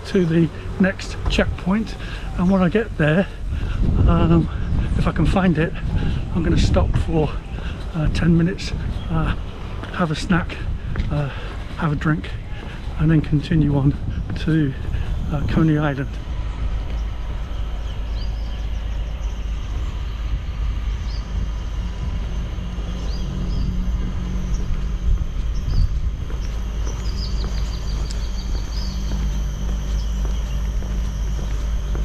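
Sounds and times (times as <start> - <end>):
steady low rumble: 0.0 - 32.0
high bird chirps: 16.8 - 32.0.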